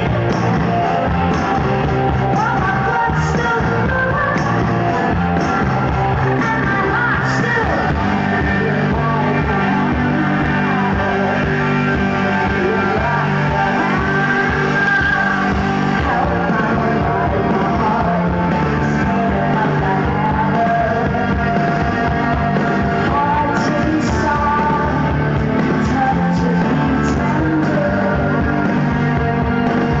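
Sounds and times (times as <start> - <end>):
live rock band playing: 0.0 - 30.0
woman singing lead: 0.0 - 30.0.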